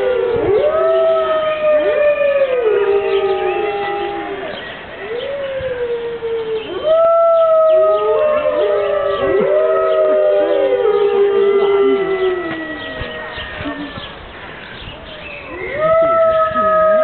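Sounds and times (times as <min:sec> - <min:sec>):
wolves howling in chorus: 0:00.0 - 0:14.2, 0:15.4 - 0:17.0.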